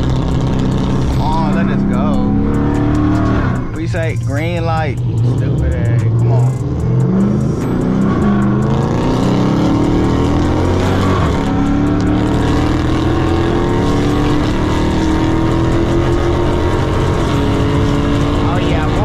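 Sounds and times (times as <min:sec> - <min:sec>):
car engine accelerating: 0:00.0 - 0:19.0.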